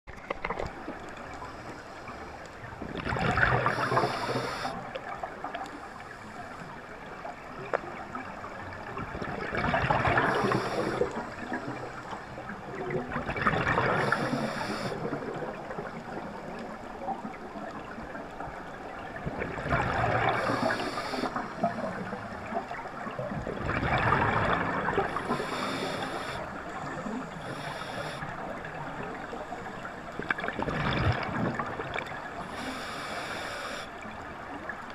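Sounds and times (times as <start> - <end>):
regulator exhale bubbling: 3.0 - 4.9, 9.6 - 11.9, 19.8 - 22.2, 23.9 - 28.4
regulator hiss: 3.7 - 4.8, 14.0 - 15.0, 20.4 - 21.6, 25.1 - 26.4, 27.4 - 28.3, 32.5 - 33.9.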